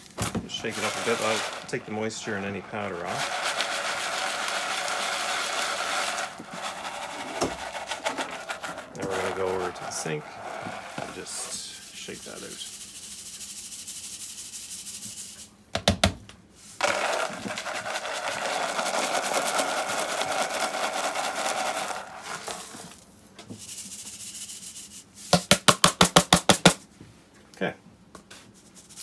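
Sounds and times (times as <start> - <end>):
capsules rattling in metal strainer: 0.5 - 11.7, 16.8 - 23.0.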